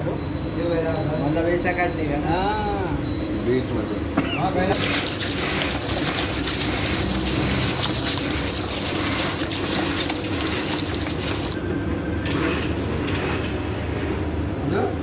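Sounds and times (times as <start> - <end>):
hand squelching thick paste: 4.3 - 11.6.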